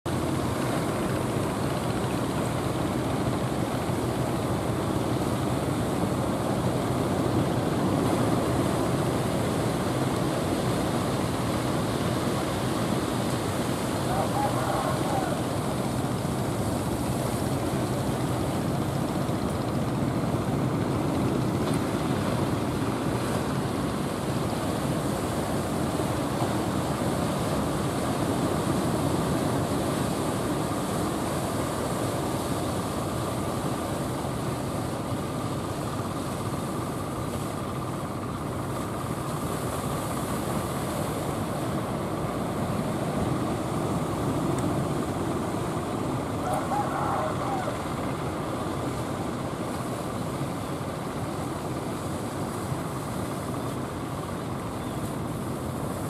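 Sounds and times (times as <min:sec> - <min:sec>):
heavy surf breaking: 0:07.5 - 0:32.4.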